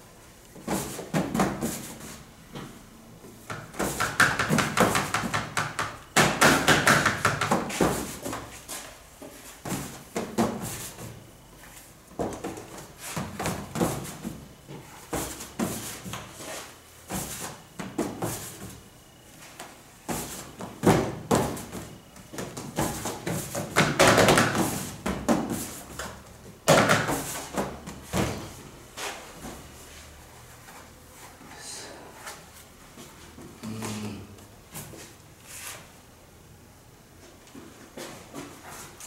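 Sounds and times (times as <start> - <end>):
knocks on metal sheets: 3.8 - 8.0.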